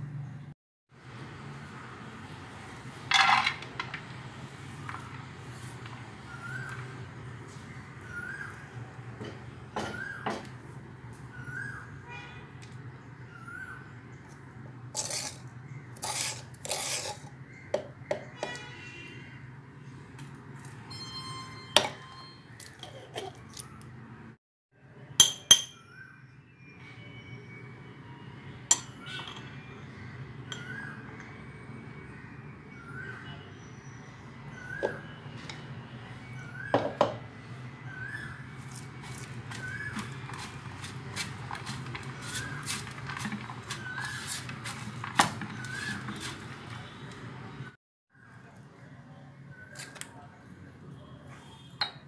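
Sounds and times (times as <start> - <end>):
onions crunching being mixed by hand: 14.3 - 17.4, 38.6 - 47.4.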